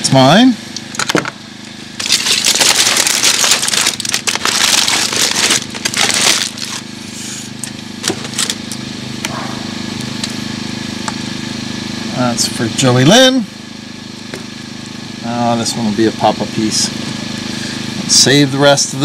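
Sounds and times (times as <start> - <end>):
steady low hum: 0.0 - 19.0
aluminium foil crinkling: 2.0 - 6.9, 8.0 - 8.8.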